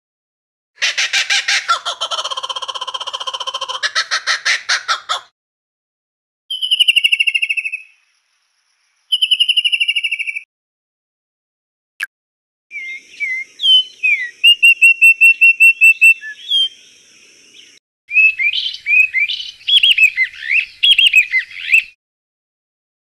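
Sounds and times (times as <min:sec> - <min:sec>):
bird chirping notes: 0:06.5 - 0:08.1, 0:08.8 - 0:10.5, 0:12.7 - 0:22.0
bird warbling song: 0:06.5 - 0:10.5, 0:12.7 - 0:22.0.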